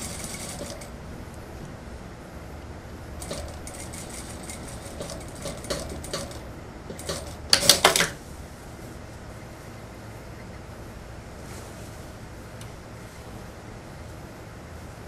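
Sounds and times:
sewing machine stitching: 0:00.0 - 0:00.9, 0:03.2 - 0:08.2
sharp clicking clatter: 0:03.2 - 0:08.2.

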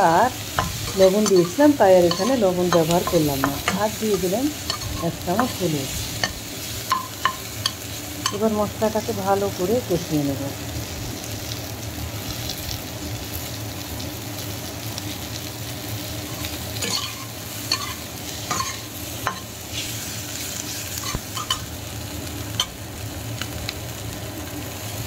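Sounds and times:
food sizzling in hot oil: 0:00.0 - 0:25.0
metal spatula scraping and tapping pan: 0:00.5 - 0:05.6, 0:16.8 - 0:19.5.

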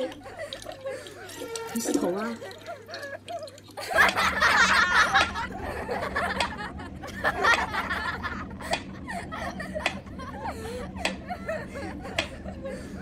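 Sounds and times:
person laughing: 0:00.0 - 0:13.0
metronome ticking: 0:06.3 - 0:06.7.

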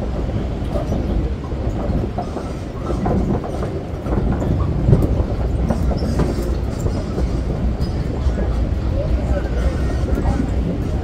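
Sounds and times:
tram rumbling on wooden boardwalk: 0:00.0 - 0:11.0
small rattles and clacks: 0:00.2 - 0:08.7.

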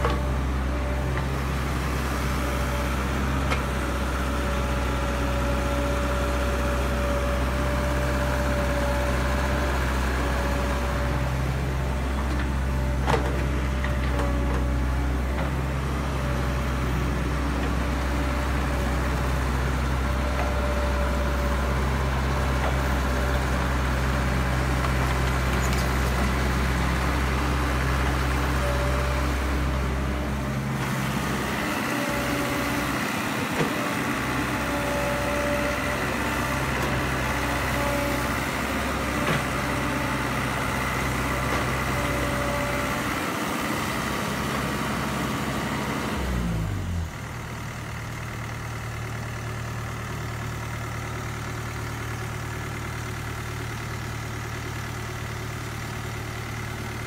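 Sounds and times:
excavator diesel engine: 0:00.0 - 0:57.0.

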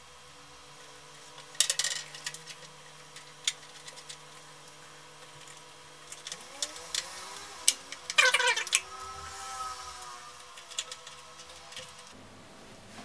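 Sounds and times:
faint steady hum: 0:00.0 - 0:13.0
screws clicking and rattling in metal: 0:05.4 - 0:12.1.

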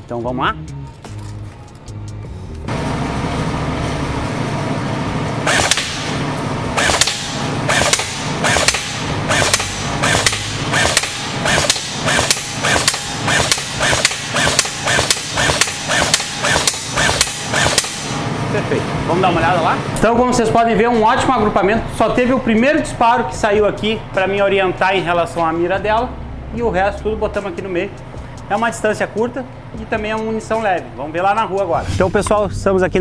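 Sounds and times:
steady background hum: 0:00.0 - 0:33.0
airsoft rifle shots: 0:05.5 - 0:06.2, 0:06.8 - 0:18.1.

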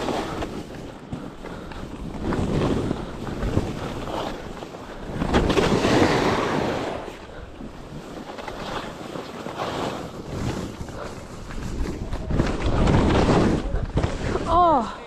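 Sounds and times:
skis scraping over snow: 0:00.0 - 0:14.8
wind buffeting microphone: 0:10.2 - 0:15.0.

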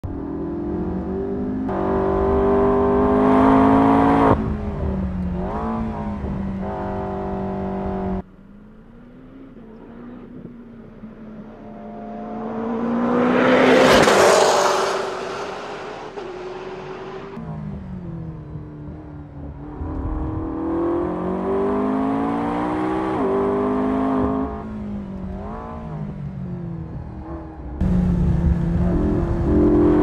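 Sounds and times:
sports car accelerating hard: 0:00.0 - 0:08.2, 0:08.8 - 0:30.0
car passing close: 0:09.5 - 0:17.4.

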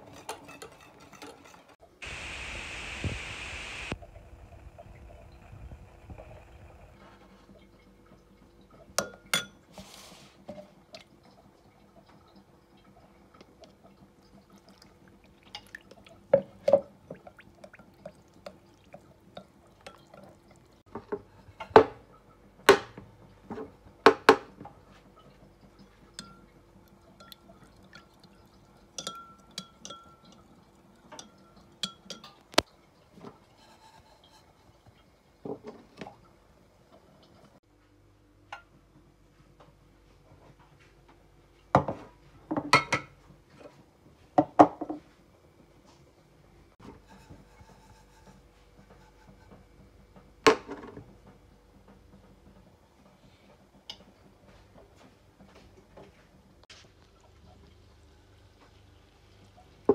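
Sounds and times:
metal spoon clinking on glass: 0:29.0 - 0:30.4.

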